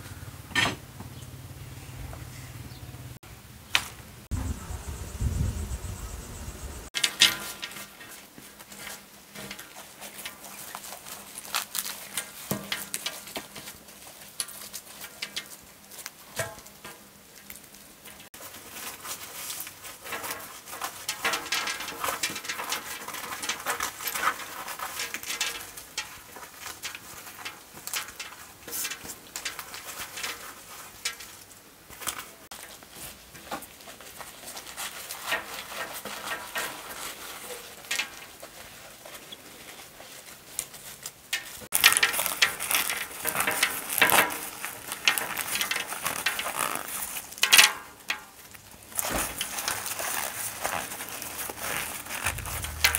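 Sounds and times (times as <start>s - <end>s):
crackling rustle of sunflower heads: 3.7s - 52.9s
seeds pattering on cloth: 8.2s - 16.2s.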